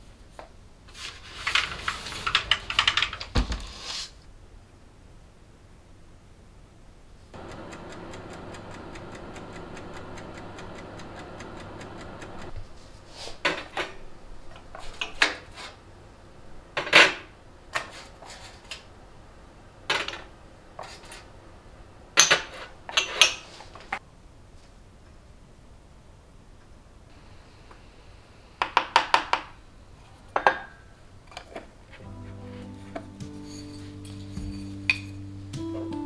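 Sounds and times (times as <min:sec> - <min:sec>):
timer ticking: 0:07.4 - 0:12.6
steady hum: 0:07.4 - 0:12.8.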